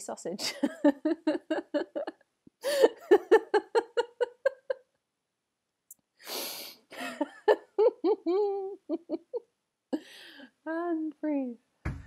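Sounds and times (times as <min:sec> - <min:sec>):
person laughing in rapid bursts: 0:00.4 - 0:04.8, 0:06.9 - 0:09.4
noisy breath: 0:06.2 - 0:06.9, 0:10.0 - 0:10.6.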